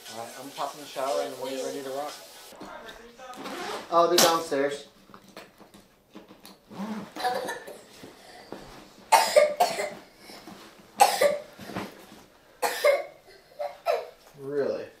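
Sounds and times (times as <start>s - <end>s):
person coughing: 7.2s - 7.9s, 9.1s - 10.4s, 11.0s - 11.5s, 12.6s - 14.1s.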